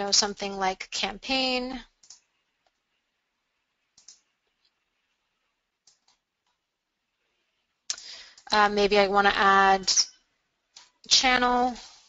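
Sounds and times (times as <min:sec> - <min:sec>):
faint computer mouse clicks: 0:02.0 - 0:02.8, 0:04.0 - 0:04.7.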